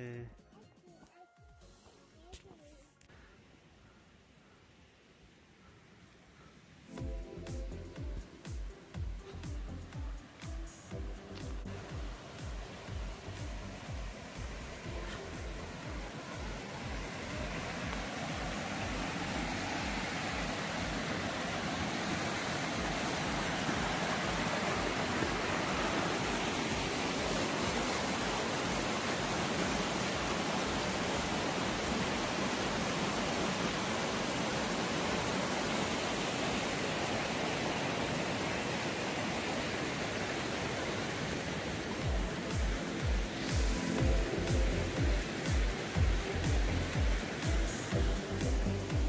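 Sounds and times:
whitewater tumbling over rocks: 12.0 - 49.0.

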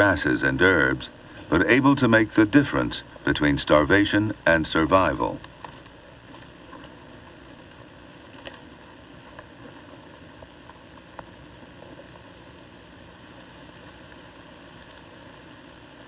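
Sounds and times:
steady hiss: 0.0 - 16.0
faint snaps and crackles: 5.4 - 16.0.

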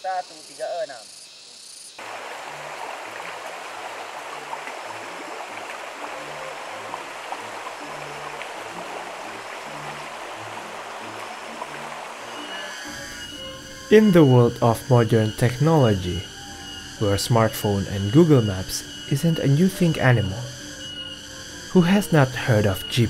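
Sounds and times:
stream water rushing: 2.0 - 16.0.

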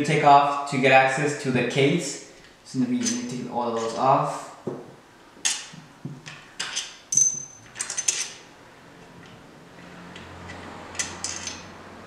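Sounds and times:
metal parts clinking: 6.3 - 8.4, 10.1 - 11.8.

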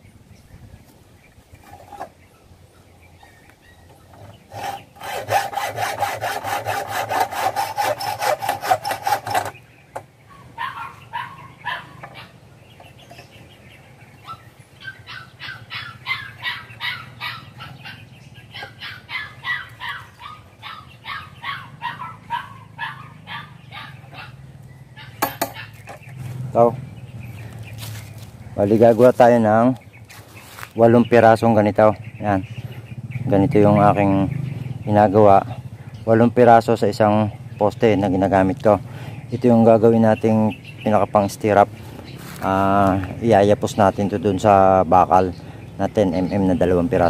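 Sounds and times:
hacksaw cutting steel bar: 4.5 - 9.6, 25.2 - 25.6.

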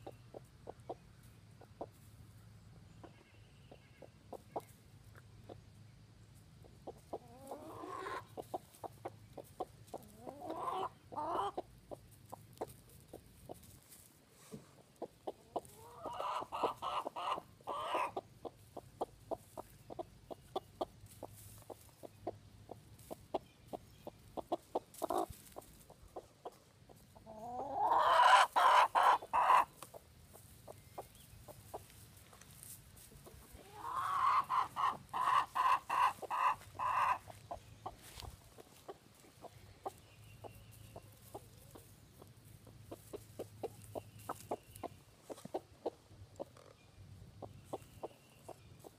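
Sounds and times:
hen clucking: 0.0 - 5.8, 6.4 - 48.9
hen drawn-out pulsing calls: 6.9 - 9.1, 9.9 - 11.7, 15.3 - 20.1, 27.2 - 29.9, 33.2 - 42.3.

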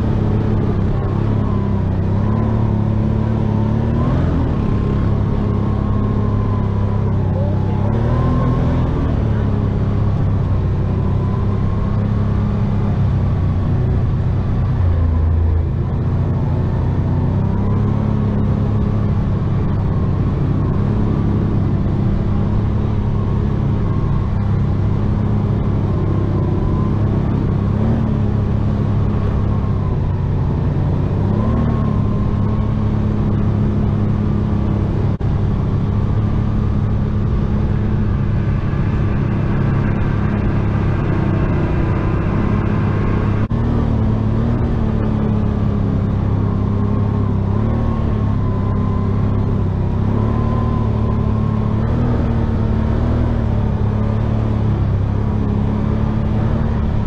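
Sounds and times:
atv engine running: 0.0 - 57.0.

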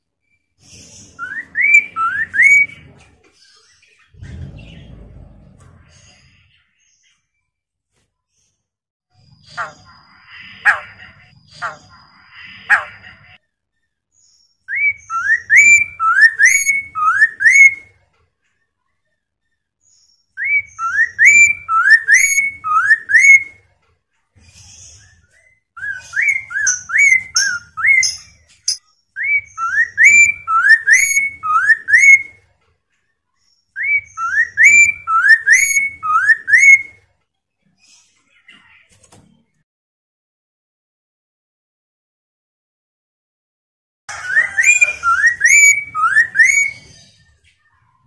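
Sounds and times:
bird singing rising whistles: 1.0 - 2.9, 14.7 - 17.8, 20.4 - 23.5, 25.8 - 32.3, 33.8 - 37.0, 44.1 - 46.8.

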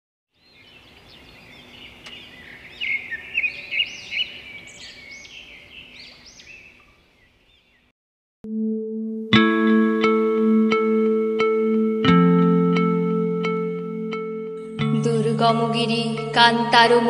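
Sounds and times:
birds chirping and whistling: 0.4 - 7.9.

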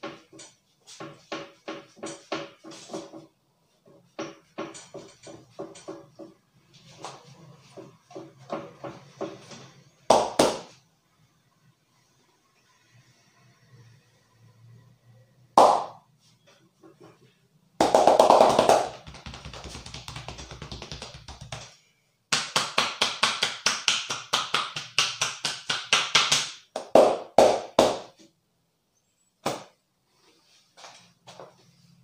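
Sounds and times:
hands slapping a back: 15.6 - 16.0, 17.8 - 21.7, 22.3 - 28.2, 29.4 - 29.7.

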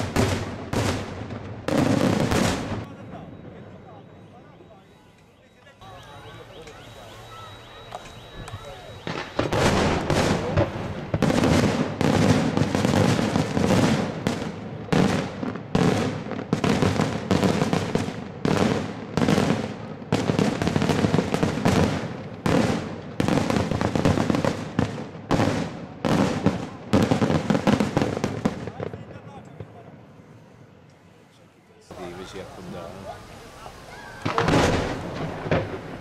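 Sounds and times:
fireworks bursting with echo: 0.0 - 30.4, 31.9 - 36.0.

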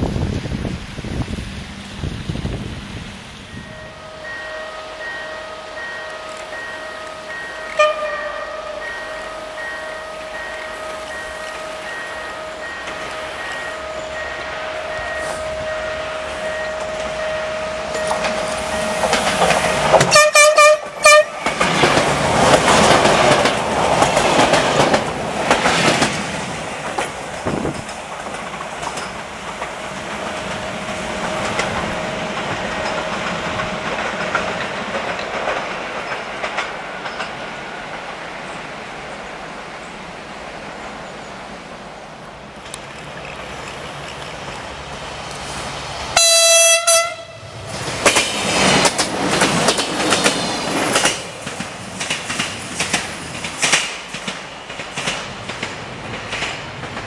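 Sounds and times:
train wheels rumbling and clattering: 0.0 - 4.3, 6.0 - 57.0
steady ringing tone: 3.5 - 20.0
train horn blast: 3.5 - 21.7, 46.2 - 47.6.

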